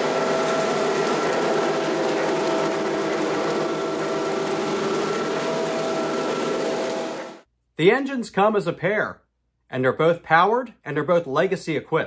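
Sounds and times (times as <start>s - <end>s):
model train wheels rolling on rail: 0.0s - 7.4s.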